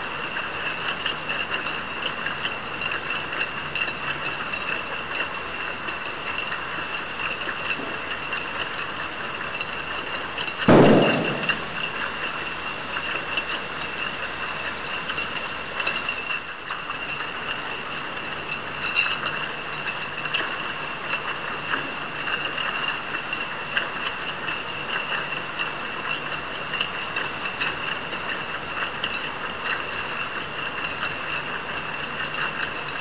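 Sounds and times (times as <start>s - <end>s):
hiss: 10.7s - 16.6s.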